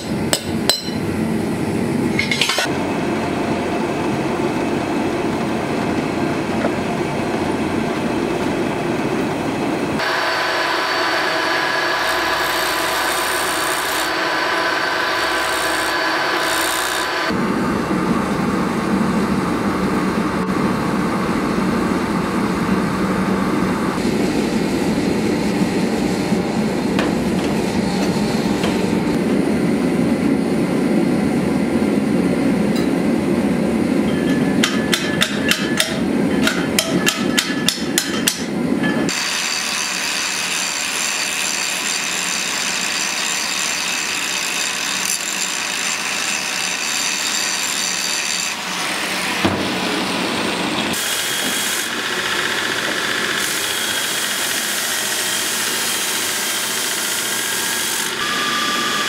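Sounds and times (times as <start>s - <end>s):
hammer blows on anvil: 0.0s - 1.1s, 34.0s - 39.2s
gas forge burner roaring: 0.0s - 39.8s, 47.8s - 59.0s
angle grinder cutting steel: 10.0s - 17.4s, 39.1s - 59.0s.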